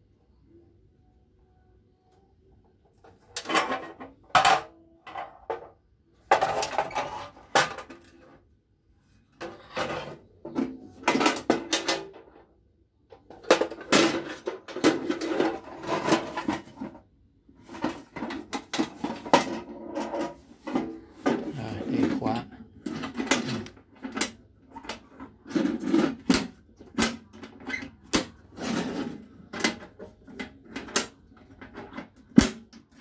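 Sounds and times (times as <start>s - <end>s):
metal toolbox clanking and rattling: 13.3s - 17.0s.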